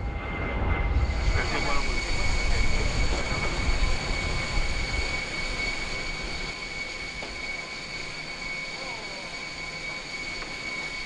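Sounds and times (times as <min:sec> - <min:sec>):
low rumble: 0:00.0 - 0:06.6
jet turbine whine: 0:00.0 - 0:11.0.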